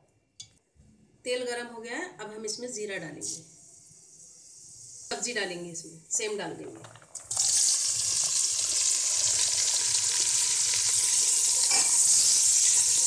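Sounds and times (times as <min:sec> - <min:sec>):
beans sizzling in hot oil: 0:07.2 - 0:13.0.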